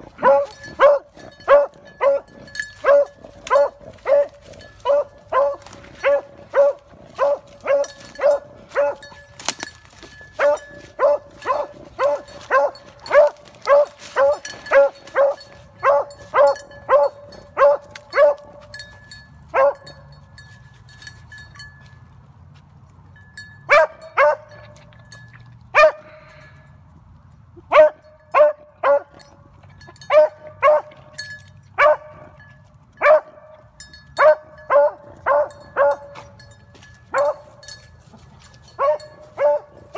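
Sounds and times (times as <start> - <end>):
dog baying: 0.0 - 9.2, 10.4 - 18.6.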